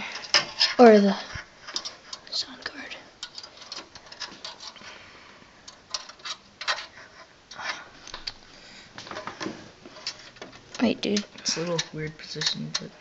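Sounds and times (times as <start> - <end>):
screwdriver clicking and scraping metal: 1.6 - 2.3, 3.2 - 4.8, 5.7 - 8.4, 9.9 - 13.0.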